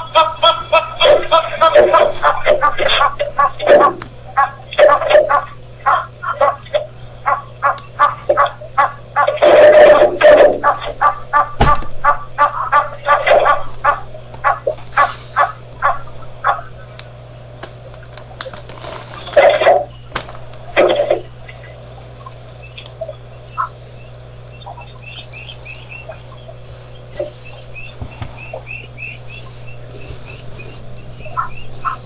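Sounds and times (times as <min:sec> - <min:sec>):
goose honking: 0:00.0 - 0:17.0, 0:18.2 - 0:20.0, 0:20.7 - 0:32.0
small birds chirping: 0:13.6 - 0:32.0.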